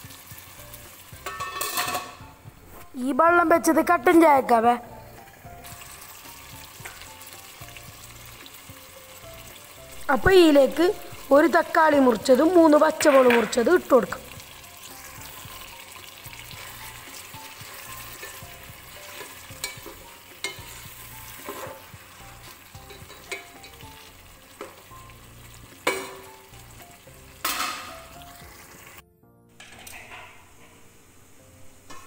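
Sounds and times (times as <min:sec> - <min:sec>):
food sizzling in a pot: 0:00.0 - 0:29.0, 0:29.6 - 0:32.0
spatula scraping and knocking pot: 0:01.2 - 0:02.3, 0:15.1 - 0:23.8, 0:29.6 - 0:30.8.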